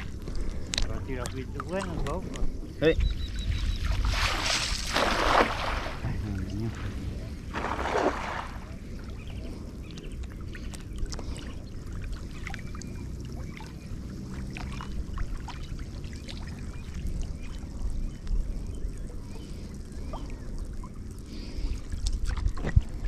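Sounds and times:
water trickling and lapping: 0:00.0 - 0:23.0
water splashing: 0:03.6 - 0:09.2, 0:09.8 - 0:17.7.

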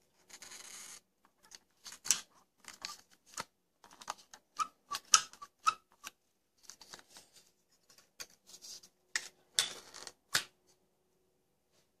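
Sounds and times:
scrape: 0:06.9 - 0:09.0.

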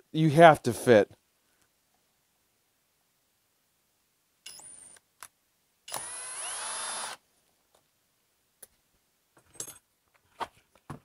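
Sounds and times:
cordless drill motor whine: 0:05.9 - 0:07.2.

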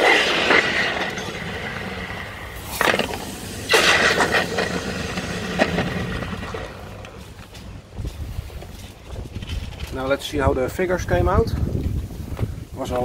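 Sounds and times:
hot metal sizzling in water: 0:00.0 - 0:07.3.

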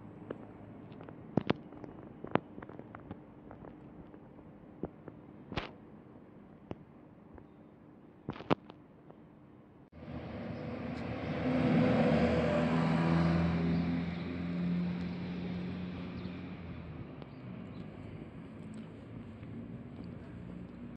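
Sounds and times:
vehicle engine passing by: 0:10.0 - 0:20.9.

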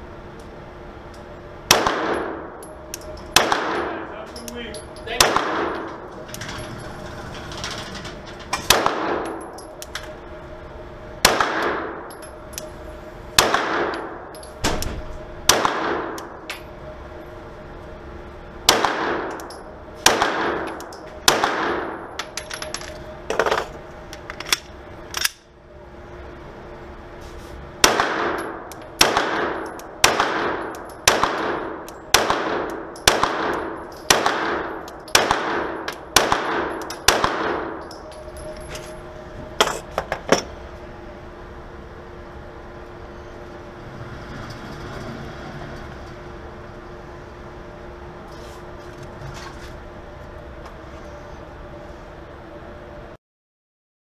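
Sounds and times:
steady hum: 0:00.0 - 0:53.2
pistol shots echoing indoors: 0:01.7 - 0:04.2, 0:05.1 - 0:06.1, 0:08.6 - 0:09.8, 0:11.2 - 0:12.2, 0:13.4 - 0:16.3, 0:18.6 - 0:22.1, 0:27.8 - 0:38.3.

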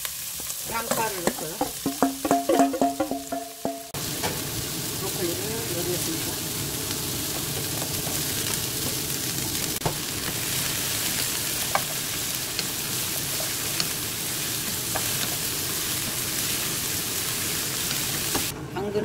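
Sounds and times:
vegetables sizzling in oil: 0:00.0 - 0:18.5
spatula knocking against pan: 0:00.8 - 0:04.0.

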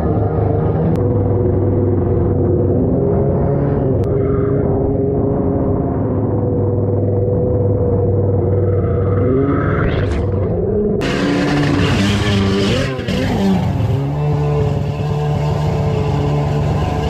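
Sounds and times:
jet ski engine revving: 0:11.0 - 0:17.0.

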